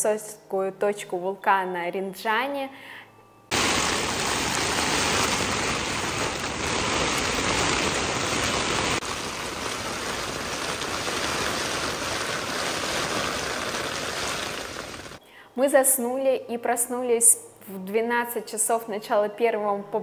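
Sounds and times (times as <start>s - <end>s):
rain and wind on a tent: 3.5s - 15.2s.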